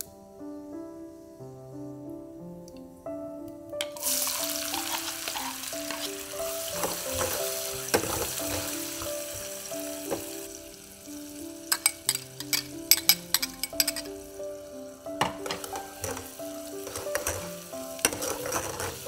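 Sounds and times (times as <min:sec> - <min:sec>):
onion sizzling in hot oil: 0:03.9 - 0:19.0
metal ladle clinking: 0:11.7 - 0:14.1.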